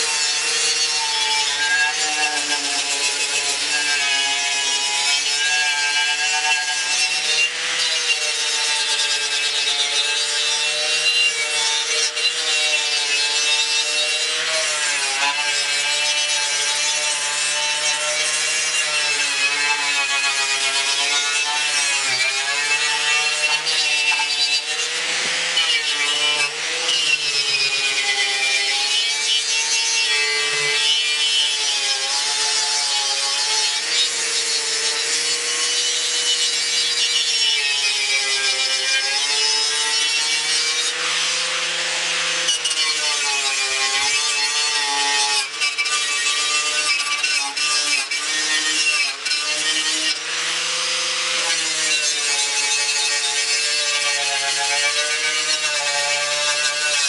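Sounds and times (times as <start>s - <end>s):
angle grinder motor whine: 20.8s - 32.0s, 39.7s - 43.0s.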